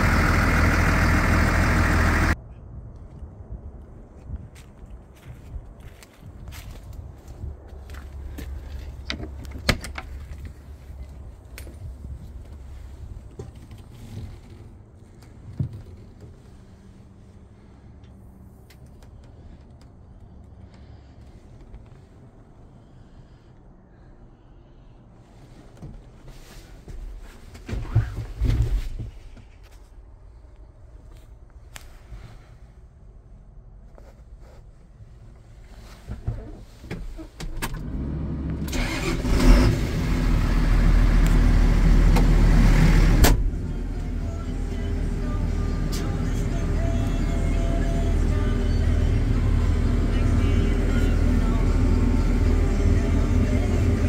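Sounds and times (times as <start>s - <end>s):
diesel engine starting and idling: 0.0s - 2.4s, 36.6s - 54.0s.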